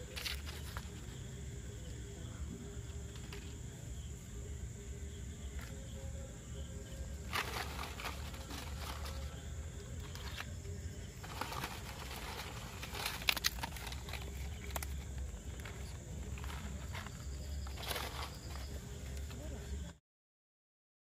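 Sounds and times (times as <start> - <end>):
rustling and crackling: 0.0 - 2.0, 7.2 - 19.9
dry leaves snapping: 7.2 - 9.4, 11.2 - 18.7.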